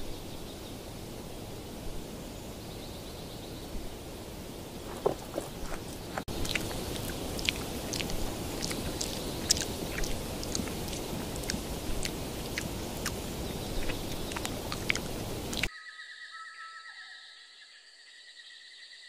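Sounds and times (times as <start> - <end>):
background hiss: 0.0 - 15.7
monkey chewing crunchily: 4.8 - 15.7.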